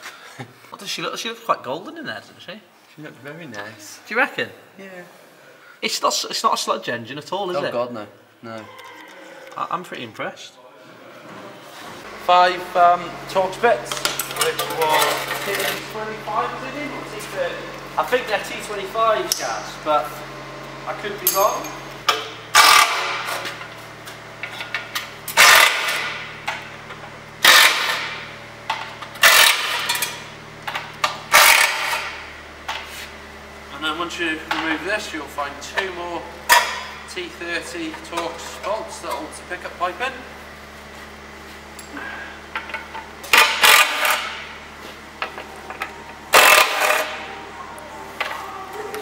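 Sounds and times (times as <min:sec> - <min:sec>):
cordless power driver running: 0:12.0 - 0:21.2, 0:21.8 - 0:33.7, 0:42.0 - 0:47.5.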